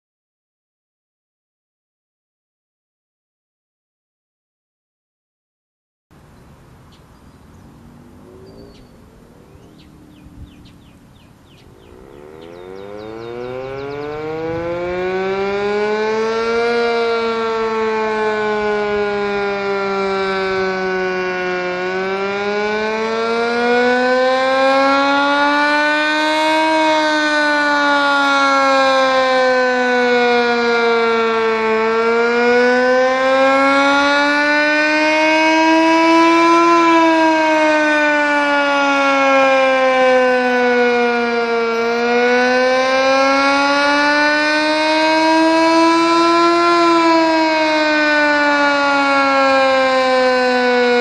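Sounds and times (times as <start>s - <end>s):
warning siren wailing: 6.7s - 51.0s.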